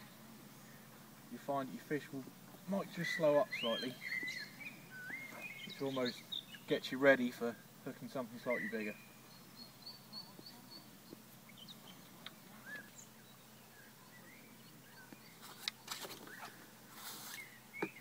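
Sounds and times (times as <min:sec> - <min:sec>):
bird chirps and calls: 0:02.8 - 0:06.8, 0:08.4 - 0:15.4
brief rustle: 0:15.4 - 0:17.5.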